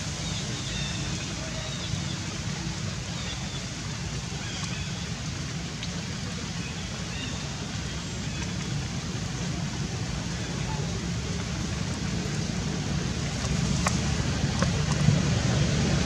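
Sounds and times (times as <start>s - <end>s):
rushing background noise: 11.0s - 16.0s.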